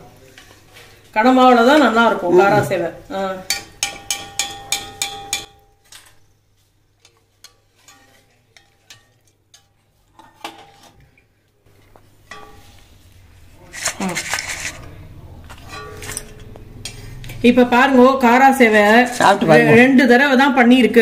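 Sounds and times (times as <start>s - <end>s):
dishes clinking and knocking: 3.4s - 5.8s, 7.9s - 11.0s, 12.2s - 12.8s, 13.7s - 17.0s.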